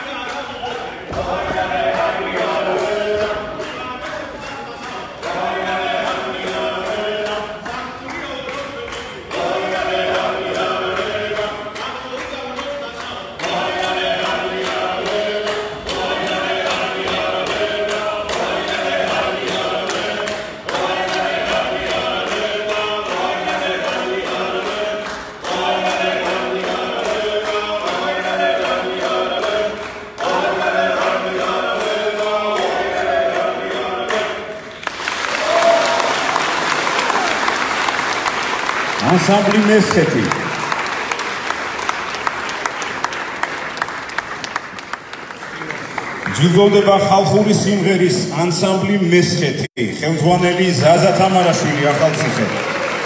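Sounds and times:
men singing a cappella: 0.0s - 34.8s
handclaps keeping time: 0.0s - 46.8s
applause: 19.5s - 31.2s, 34.1s - 46.9s, 50.9s - 53.0s.

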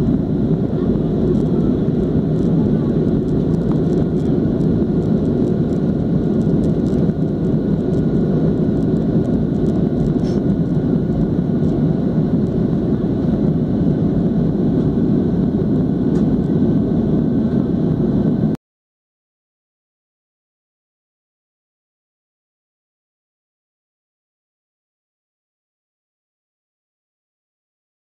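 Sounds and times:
airliner engine and airflow rumble: 0.0s - 18.6s
faint steady whine: 0.0s - 18.6s.

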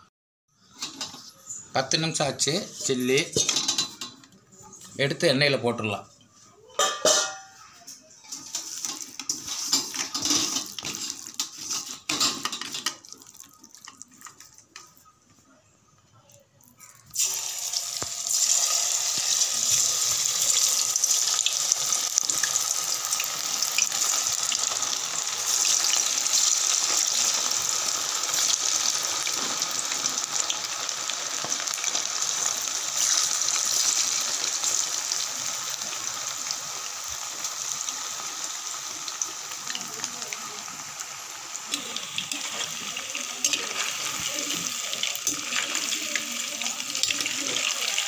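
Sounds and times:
chicken deep-frying in oil: 8.2s - 15.2s, 16.8s - 48.0s.

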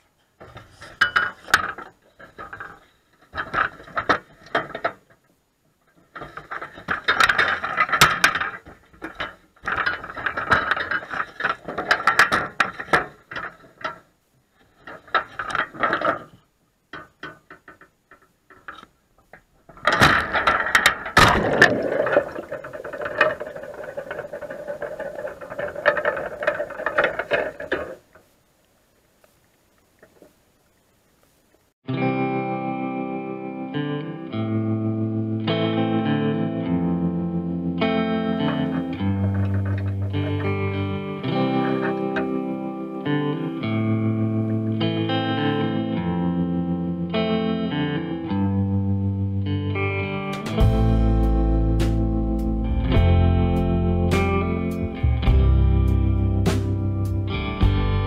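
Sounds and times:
scraping and grinding: 0.3s - 28.4s, 37.8s - 44.8s
wire trap rattling and clanking: 6.2s - 14.0s, 19.8s - 28.0s, 38.5s - 40.8s.

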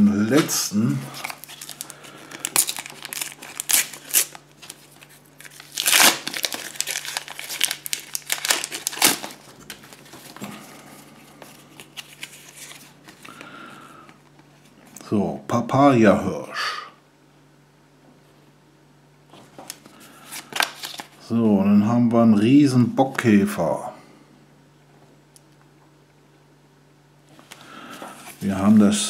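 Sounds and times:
foil wrapper crackling: 0.3s - 10.8s.

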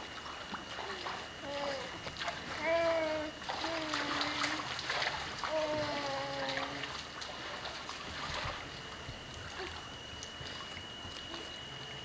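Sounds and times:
pool water splashing: 0.0s - 12.0s
young child calling: 5.5s - 6.8s.

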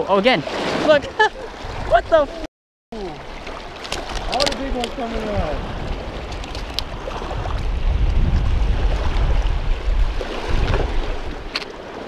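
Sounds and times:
wind buffeting microphone: 0.6s - 2.5s, 4.0s - 12.0s
water washing against rocks: 3.1s - 12.0s.

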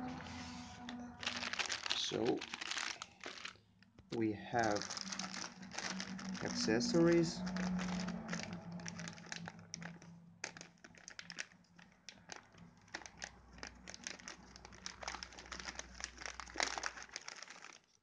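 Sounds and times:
plastic bag crinkling: 0.1s - 18.0s.

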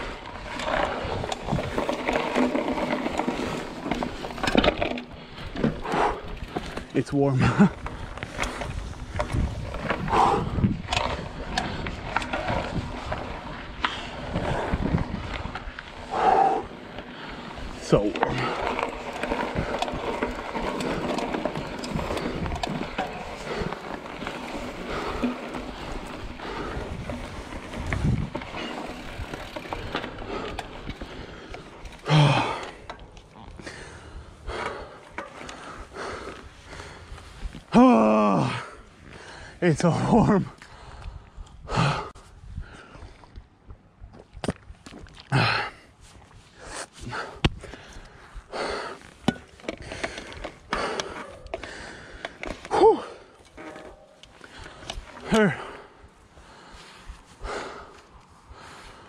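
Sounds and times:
bike rattling and knocking: 0.0s - 41.0s, 47.1s - 59.0s
bike tyres rolling on gravel: 0.0s - 59.0s.

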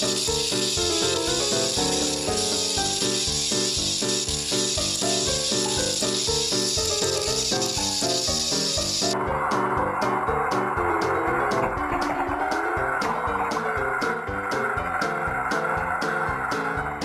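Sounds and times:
steady high hiss: 0.0s - 9.2s
bouncy background music: 0.0s - 17.0s.

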